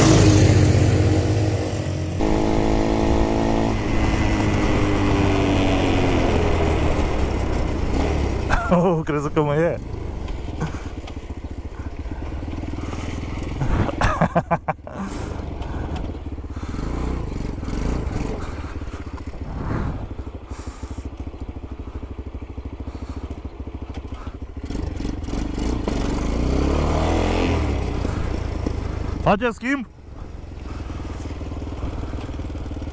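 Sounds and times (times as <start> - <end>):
loud engine burst: 0.0 - 9.0
small atv engine running: 0.0 - 32.9.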